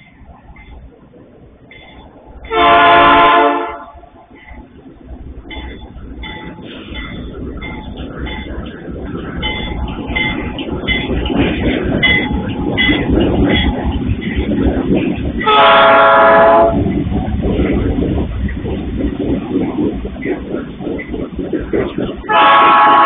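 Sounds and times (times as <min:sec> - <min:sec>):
diesel locomotive engine rumble: 0:00.0 - 0:23.0
locomotive horn blast: 0:02.5 - 0:04.1, 0:15.5 - 0:16.8, 0:22.3 - 0:23.0
level crossing warning bell: 0:09.4 - 0:11.4, 0:12.0 - 0:14.4.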